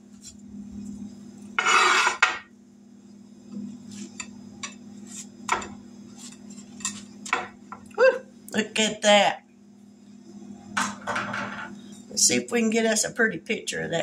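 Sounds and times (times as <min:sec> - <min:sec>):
steady low hum: 0:00.0 - 0:14.0
metal spatula scraping skillet: 0:01.6 - 0:02.4, 0:03.9 - 0:07.2.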